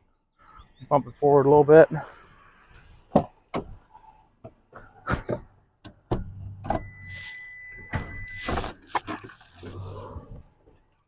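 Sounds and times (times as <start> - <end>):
high beep: 6.8 - 8.6.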